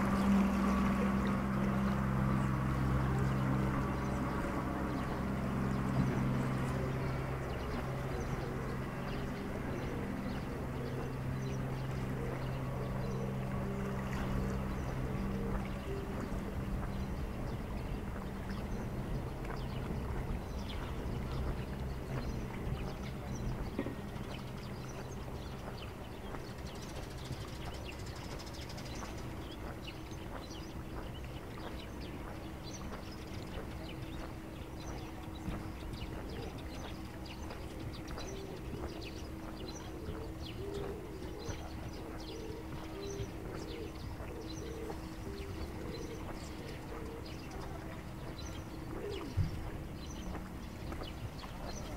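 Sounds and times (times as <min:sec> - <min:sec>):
fast-flowing water rushing: 0:00.0 - 0:23.4
footsteps on paved path: 0:00.0 - 0:51.9
motor humming: 0:00.0 - 0:51.9
small birds chirping: 0:00.0 - 0:51.9.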